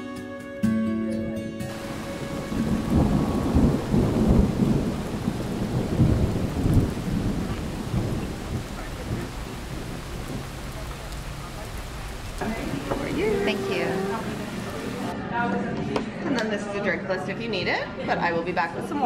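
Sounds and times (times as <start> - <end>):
deep rumble of thunder: 1.7 - 15.1
steady rain: 1.7 - 15.2.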